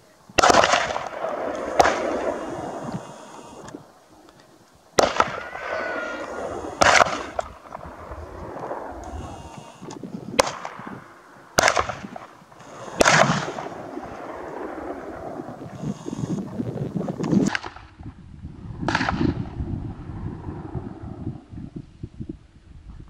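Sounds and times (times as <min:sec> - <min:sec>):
shotgun shots with echo: 0:00.4 - 0:03.6, 0:05.0 - 0:08.0, 0:10.4 - 0:11.0, 0:11.6 - 0:15.4, 0:18.9 - 0:19.4.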